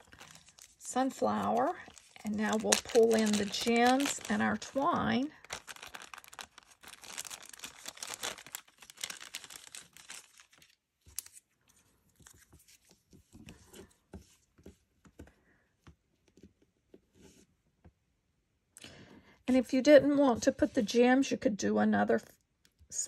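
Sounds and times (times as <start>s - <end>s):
plastic sheet crinkling: 0.0s - 11.4s.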